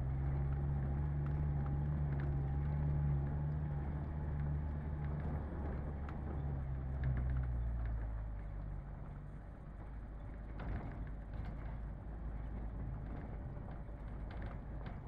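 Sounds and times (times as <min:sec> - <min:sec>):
light knocks and rattles: 0:09.8 - 0:15.0.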